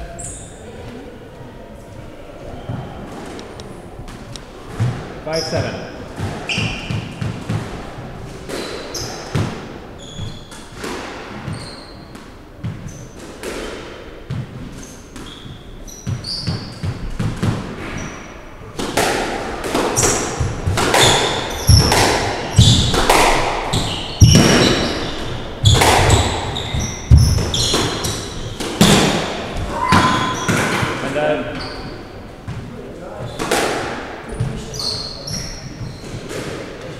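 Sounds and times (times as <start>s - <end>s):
shoes squeaking on wooden floor: 4.8s - 7.5s, 8.3s - 13.2s, 14.6s - 17.2s, 20.0s - 32.2s, 33.1s - 33.5s, 34.3s - 36.6s
squash ball bouncing: 6.0s - 17.9s, 18.8s - 31.6s
racket striking ball: 6.1s - 9.7s, 18.8s - 31.0s, 33.3s - 34.6s
ball smacking off walls: 25.6s - 31.0s.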